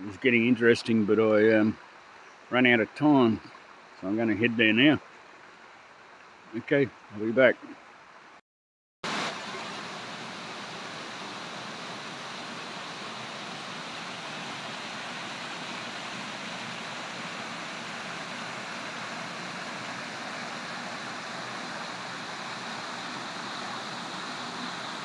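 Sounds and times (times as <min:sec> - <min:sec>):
creek water rushing over rocks: 0:09.0 - 0:25.0.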